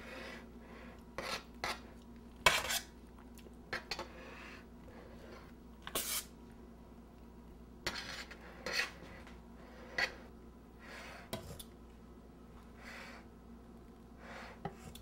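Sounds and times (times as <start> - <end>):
metal spatula scraping steel bowl: 1.2 - 2.9, 5.9 - 6.3, 7.8 - 9.1.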